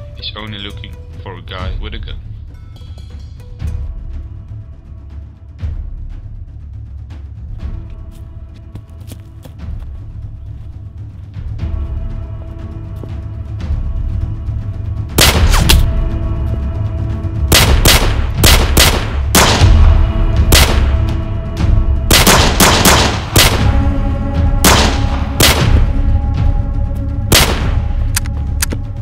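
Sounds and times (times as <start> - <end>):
dramatic film music: 0.0 - 29.0
gunshots: 15.2 - 15.9, 17.5 - 21.1, 22.1 - 23.8, 24.6 - 26.0, 27.3 - 28.2.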